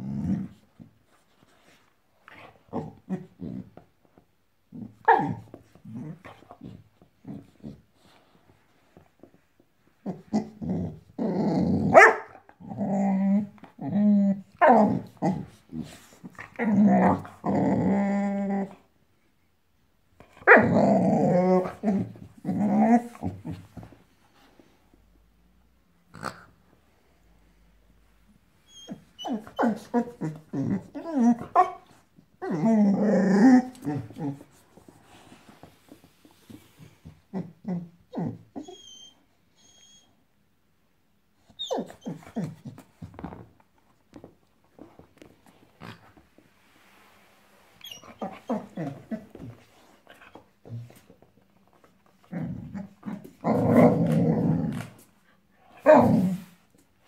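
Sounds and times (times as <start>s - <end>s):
puppy growling: 16.3s - 18.7s, 20.5s - 23.9s, 28.7s - 31.8s, 32.4s - 34.5s, 52.0s - 55.1s
puppy whimpering: 28.7s - 31.8s, 37.4s - 40.1s, 41.5s - 42.8s.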